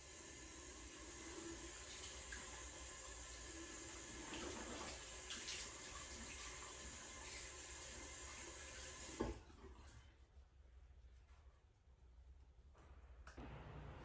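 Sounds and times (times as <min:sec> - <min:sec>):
water running from a tap: 0:00.0 - 0:09.6.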